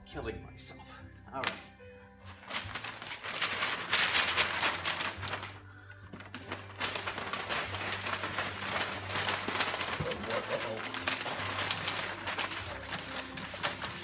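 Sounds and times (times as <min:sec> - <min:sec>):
stiff paper rustling: 0:01.4 - 0:14.0.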